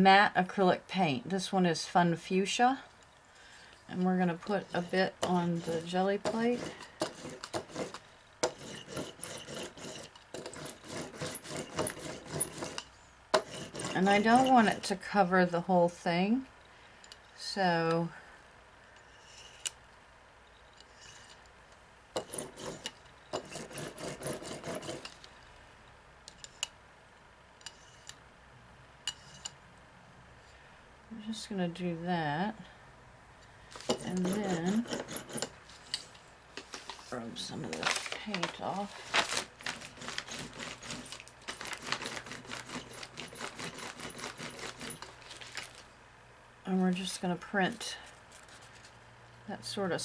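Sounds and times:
paper rustling and crinkling: 36.6 - 43.2, 45.0 - 45.9.

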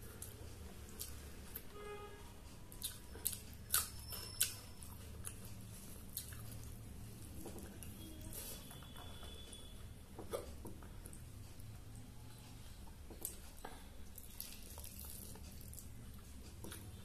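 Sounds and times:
wet chewing: 2.7 - 6.8, 14.1 - 17.0.

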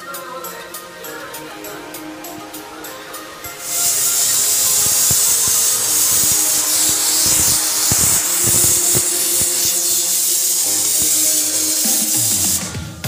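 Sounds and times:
pressure cooker whistling: 2.4 - 12.8.

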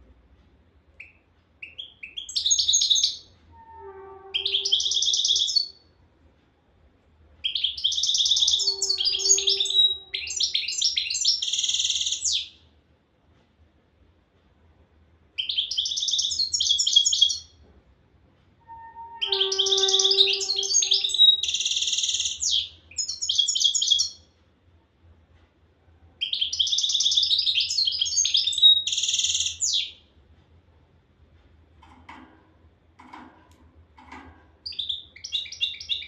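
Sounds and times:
goldfinch twittering trills: 19.2 - 24.1.

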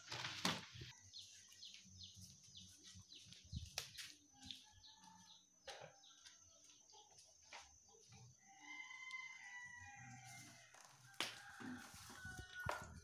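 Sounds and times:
small birds cheeping: 0.9 - 10.7.

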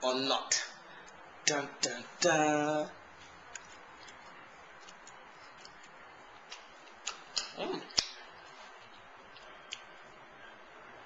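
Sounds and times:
person chewing: 3.5 - 8.1
lip smacks: 3.5 - 8.2, 8.8 - 10.1
mouth clicks: 4.8 - 8.2, 9.4 - 10.0.

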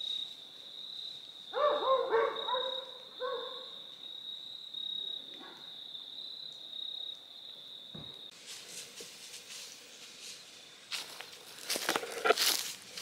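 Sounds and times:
high insect trill: 0.0 - 13.0
dog barking: 1.5 - 3.8.

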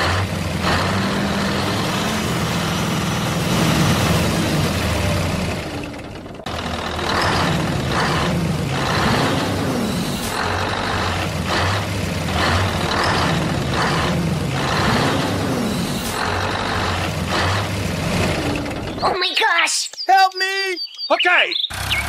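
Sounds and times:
heavy truck engine running: 0.0 - 19.2, 21.6 - 22.0.

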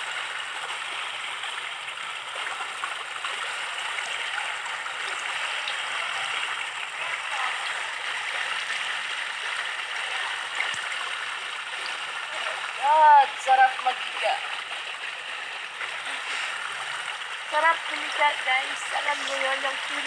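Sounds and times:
running water rushing: 0.0 - 20.0.

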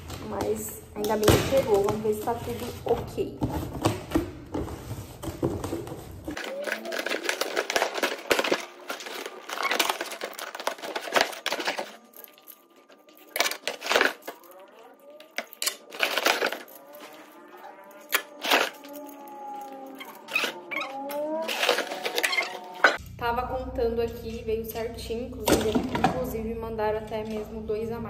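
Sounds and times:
cardboard and tape ripping: 1.3 - 23.0
plastic hangers clacking: 6.3 - 17.0, 18.0 - 23.0.

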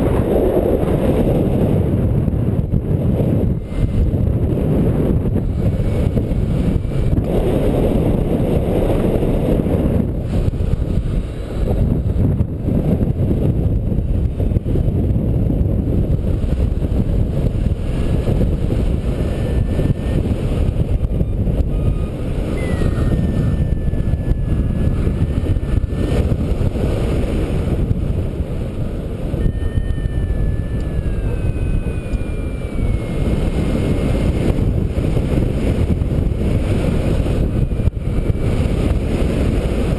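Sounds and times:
wind rumbling on microphone: 0.0 - 39.9
faint thin whistling tones: 20.9 - 25.8, 29.4 - 34.3.

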